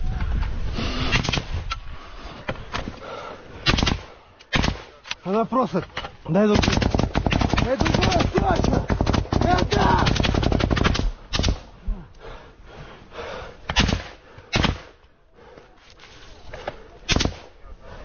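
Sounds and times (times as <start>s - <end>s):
single rifle shots: 3.6s - 5.0s.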